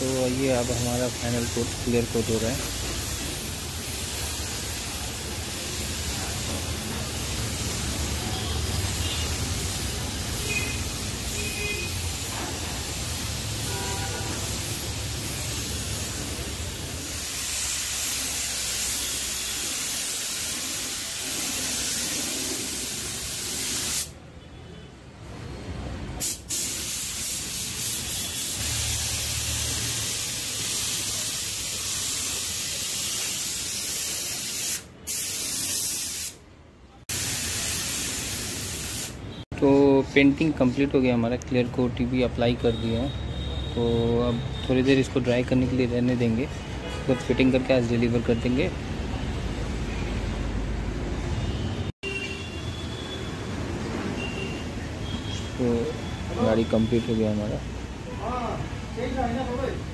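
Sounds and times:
paint spray gun hissing: 0.0s - 24.1s, 26.2s - 36.4s, 37.1s - 39.2s.

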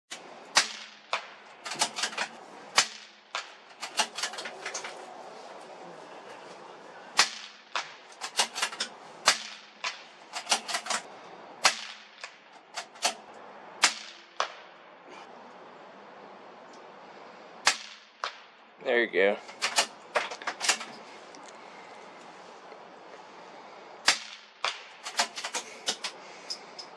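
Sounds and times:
rifle shots cracking: 0.5s - 4.4s, 7.2s - 13.2s, 13.8s - 14.7s, 17.6s - 18.6s, 24.0s - 26.0s.

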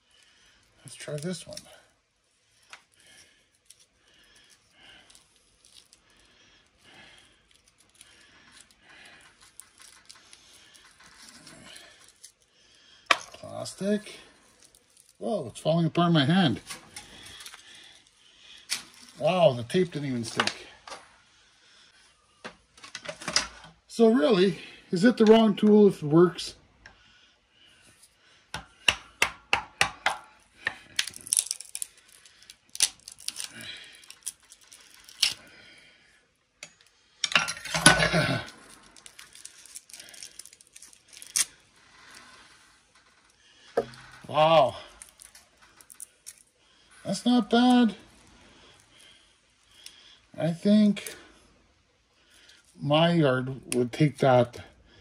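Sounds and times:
soft rustling of wire: 0.0s - 24.0s, 30.3s - 52.9s
scraping and cracking: 2.6s - 15.4s, 30.0s - 35.6s, 36.7s - 50.0s.

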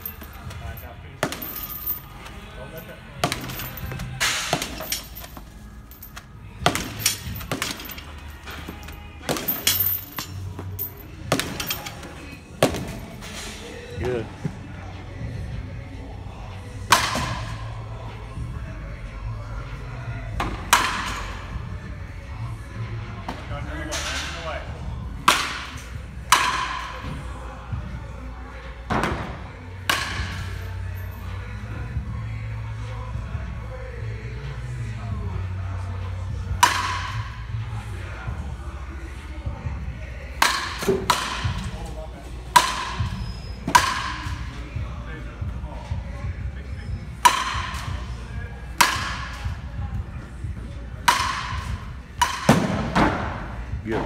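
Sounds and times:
balls landing: 0.0s - 2.5s, 3.1s - 13.3s, 47.2s - 54.0s
ball knocking cage netting: 3.2s - 5.5s, 6.6s - 12.0s
bat cracking on ball: 25.2s - 27.0s, 29.0s - 30.5s, 36.6s - 37.5s, 40.4s - 41.8s, 42.5s - 44.4s, 47.2s - 48.0s, 48.8s - 49.6s, 51.0s - 53.5s.

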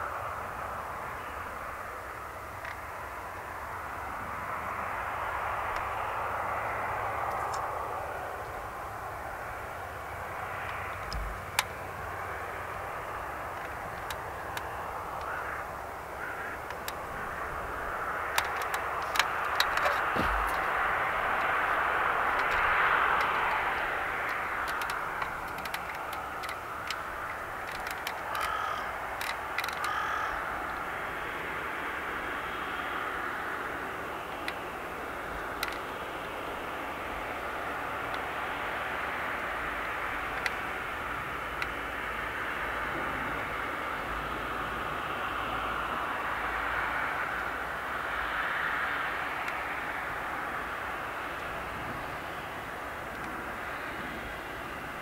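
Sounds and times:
jet engines running: 0.1s - 55.0s
bird calls: 13.0s - 30.9s.

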